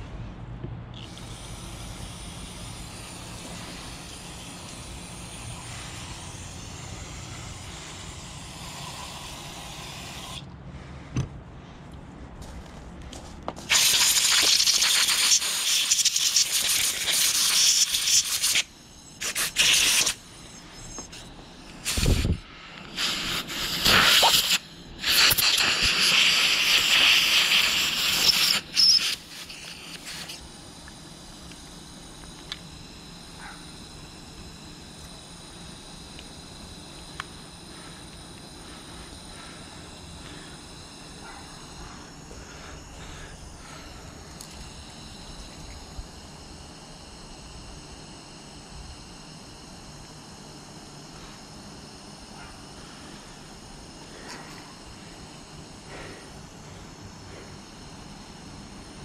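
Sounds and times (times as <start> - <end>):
aerosol spraying: 1.0 - 10.5, 13.6 - 45.7
compressed air blasts: 1.0 - 11.5, 13.5 - 48.4.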